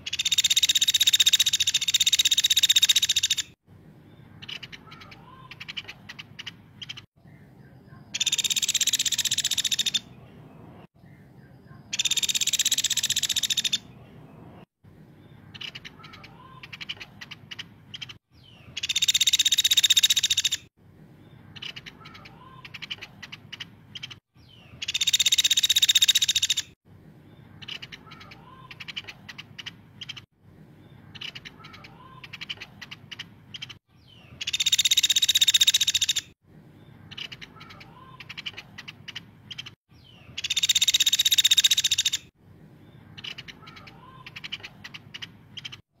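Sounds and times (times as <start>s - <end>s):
rapid ticking bird calls: 0.0s - 3.6s, 4.4s - 7.2s, 8.1s - 10.1s, 11.9s - 13.9s, 15.4s - 20.7s, 21.4s - 26.8s, 27.6s - 30.4s, 31.0s - 36.4s, 37.0s - 42.4s, 43.1s - 46.0s
woodpecker buzzy trill: 0.0s - 3.6s, 8.2s - 10.1s, 12.0s - 13.8s, 18.8s - 20.7s, 24.8s - 26.8s, 34.4s - 36.3s, 40.4s - 42.3s.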